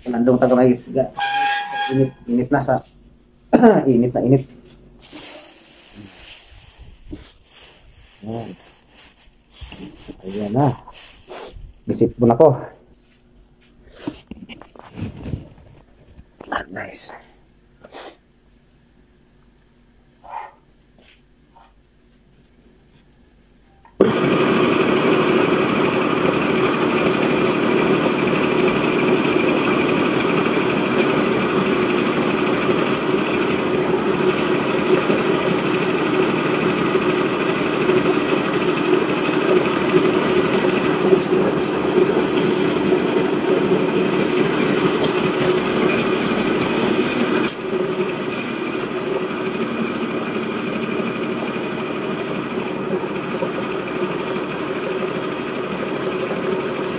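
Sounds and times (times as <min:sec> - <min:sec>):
electric grinding mill running: 0:01.2 - 0:02.1, 0:04.3 - 0:12.6, 0:23.9 - 0:56.9.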